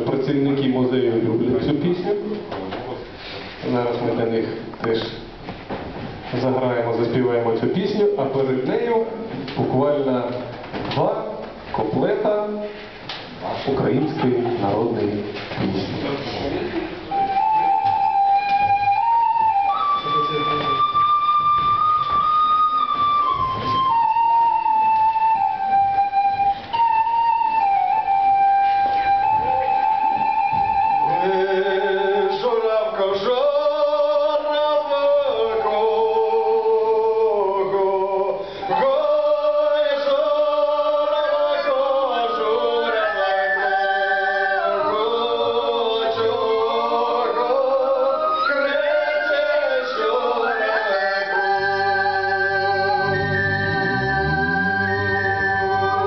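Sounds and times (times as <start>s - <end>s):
wooden flute melody: 16.5s - 56.0s
group singing folk song in harmony: 31.0s - 56.0s.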